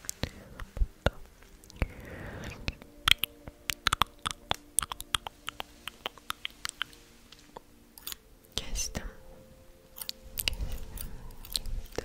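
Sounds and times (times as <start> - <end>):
sharp plucking clicks and snaps: 2.7 - 9.0, 10.0 - 12.0.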